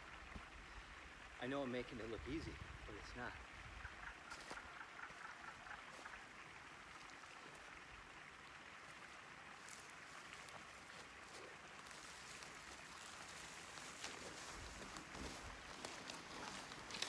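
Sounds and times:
faint outdoor hiss: 0.0 - 17.0
log swung through dry grass: 9.6 - 17.0.

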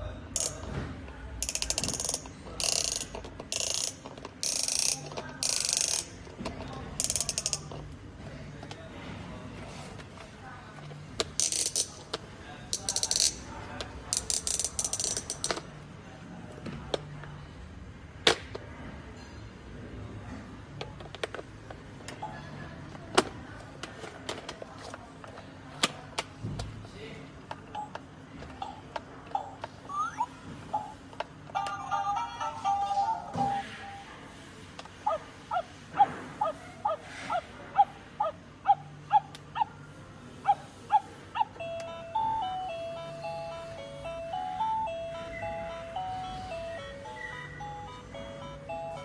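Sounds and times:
toy steering wheel ratchet clicking: 1.4 - 6.2, 11.4 - 12.0, 14.1 - 15.6.

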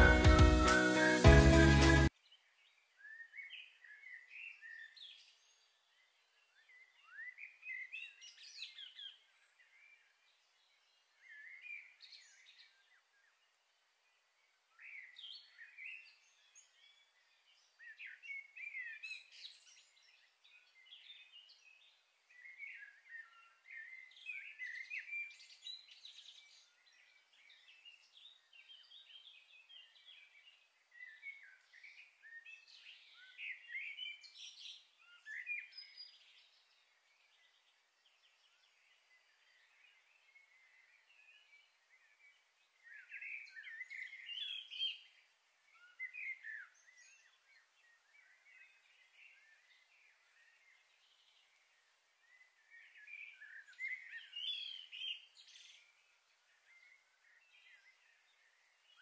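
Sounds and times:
small birds chirping: 0.0 - 59.0.

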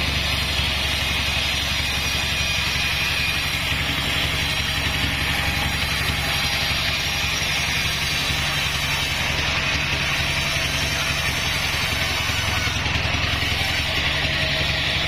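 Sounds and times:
band sawmill drone: 0.0 - 15.0
blade sawing through log: 0.0 - 15.0.

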